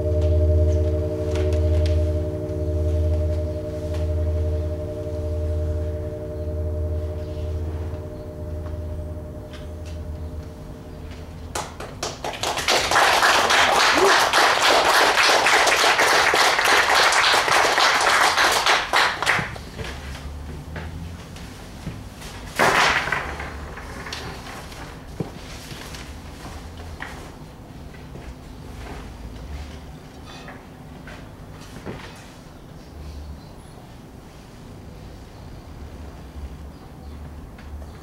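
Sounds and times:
sine-wave oscillator tones: 0:00.0 - 0:11.8
low pulsing tone: 0:00.0 - 0:11.9
loud dense crackling noise: 0:21.2 - 0:27.3.

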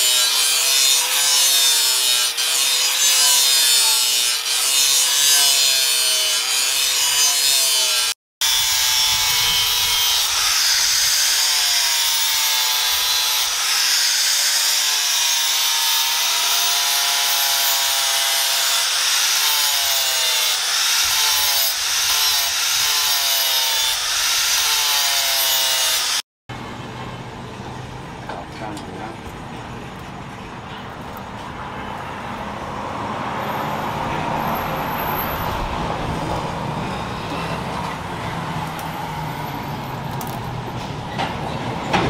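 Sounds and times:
angle grinder grinding steel: 0:00.0 - 0:26.2.

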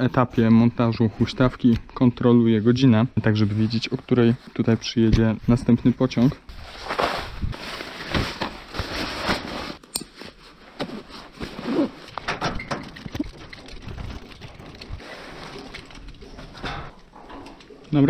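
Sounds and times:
rope rustling: 0:06.6 - 0:12.3
metal hardware clicks and clinks: 0:12.2 - 0:13.6.

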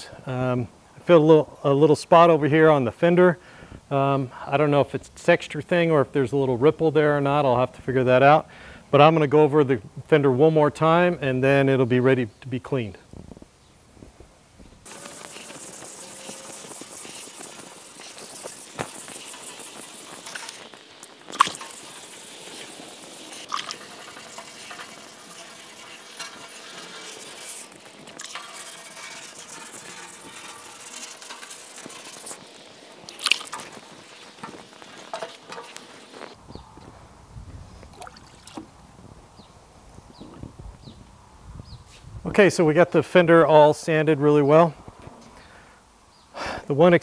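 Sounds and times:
sandpaper scrubbing wet panel: 0:14.9 - 0:36.4.

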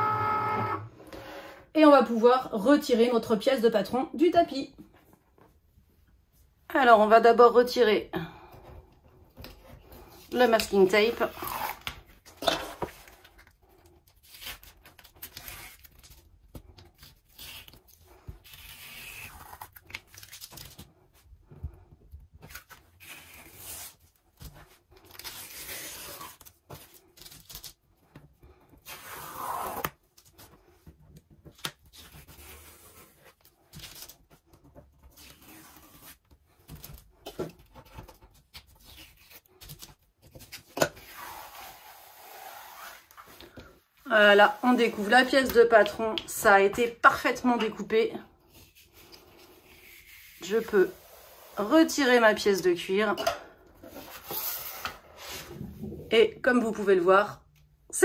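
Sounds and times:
masking tape peeling: 0:17.0 - 0:20.7.

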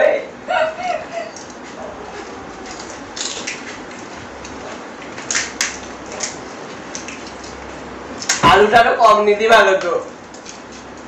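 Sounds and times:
crisp shells cracking: 0:01.3 - 0:08.4, 0:09.8 - 0:11.0.

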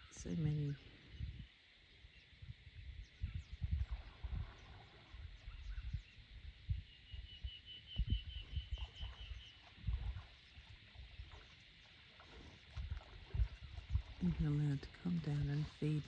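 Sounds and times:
low rumbles on microphone: 0:02.4 - 0:11.5, 0:12.2 - 0:16.0.

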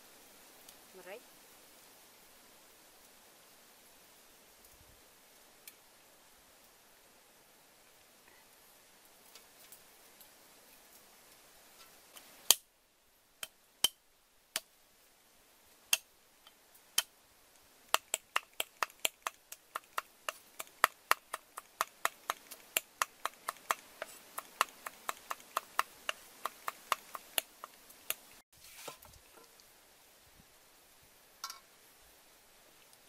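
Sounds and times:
cleaver chopping on wooden board: 0:18.0 - 0:27.8.

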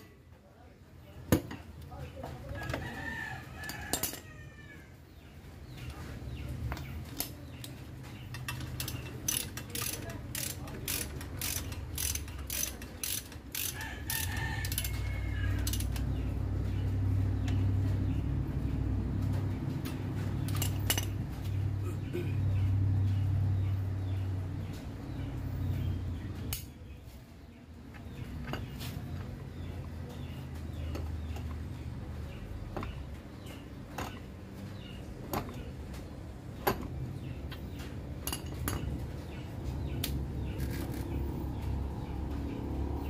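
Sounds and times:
ratchet wrench clicking: 0:08.3 - 0:16.1.

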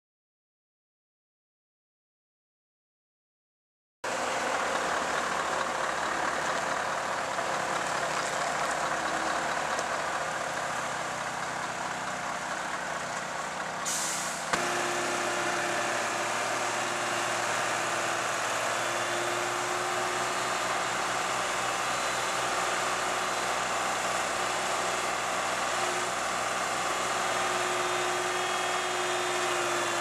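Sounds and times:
truck diesel engine running: 0:04.1 - 0:30.0
air brakes hissing: 0:13.8 - 0:14.6.

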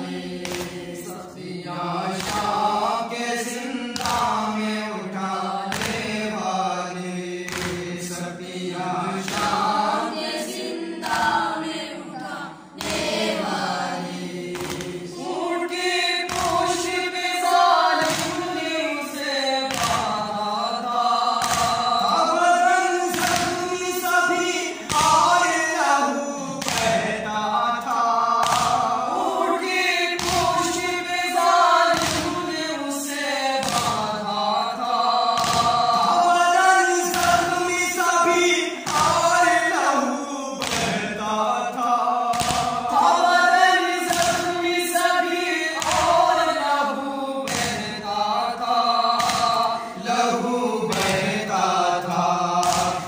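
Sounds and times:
men chanting a lament in unison: 0:00.0 - 0:53.0
chest-beating thumps: 0:21.3 - 0:22.3.

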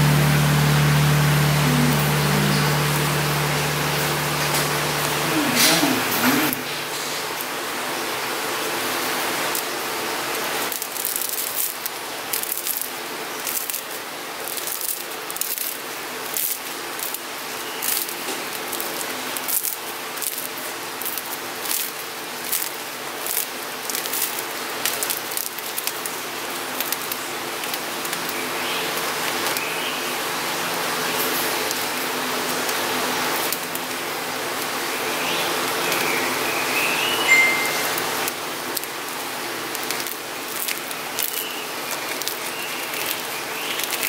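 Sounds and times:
steady hiss: 0:00.0 - 0:44.0
bread crust crackling: 0:09.5 - 0:29.7, 0:38.0 - 0:44.0.

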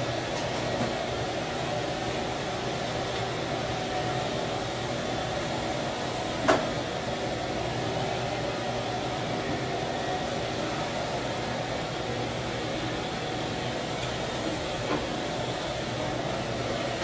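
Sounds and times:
mechanical hum with hiss: 0:00.0 - 0:17.0.

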